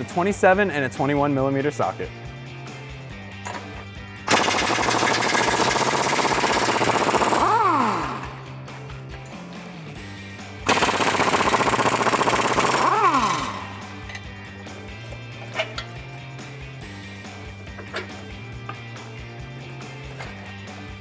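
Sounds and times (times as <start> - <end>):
pneumatic impact wrench hammering: 4.3 - 8.4, 10.7 - 14.2.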